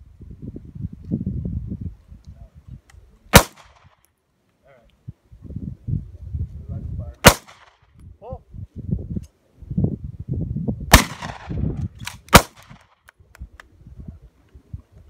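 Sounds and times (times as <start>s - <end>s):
handgun shots: 3.3s - 3.9s, 7.2s - 7.8s, 10.9s - 12.9s.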